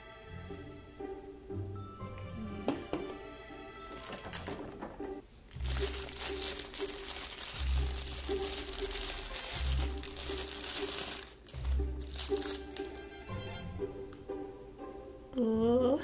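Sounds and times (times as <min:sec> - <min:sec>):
music with slow bass line: 0:00.3 - 0:03.9
plastic packaging crinkling: 0:03.9 - 0:04.9, 0:05.5 - 0:13.0.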